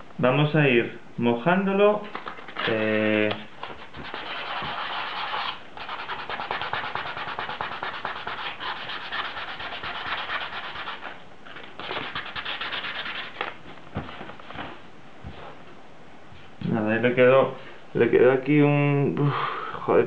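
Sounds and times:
sandpaper scratching on plastic: 3.6s - 11.2s, 11.8s - 13.6s.

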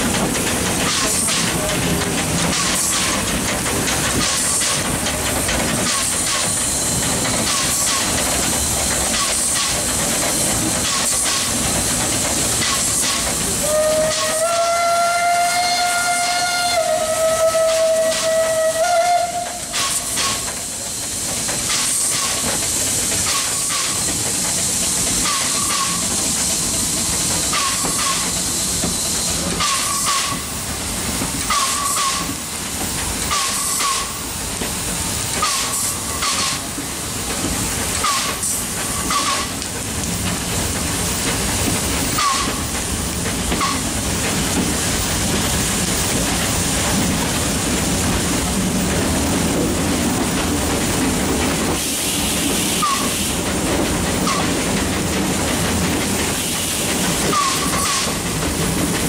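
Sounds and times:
steam hissing: 0.0s - 59.0s
steam whistle blast: 13.6s - 20.5s, 52.8s - 53.2s.

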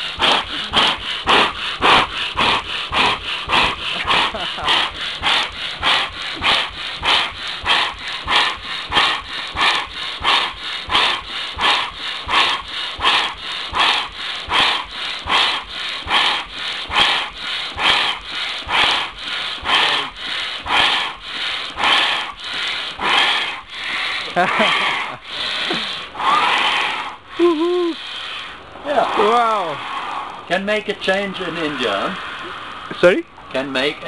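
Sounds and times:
engine whooshing: 28.4s - 34.0s.

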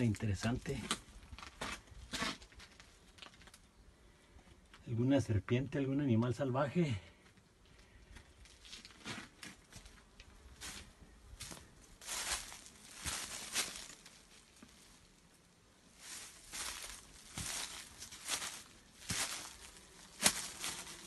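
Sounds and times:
footsteps crunching through dry leaves: 8.4s - 21.0s.

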